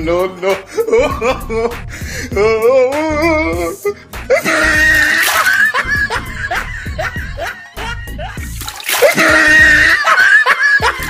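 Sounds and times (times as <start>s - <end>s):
comedic background music: 0.0s - 11.0s
water splashing onto concrete: 5.0s - 5.8s, 8.4s - 9.9s.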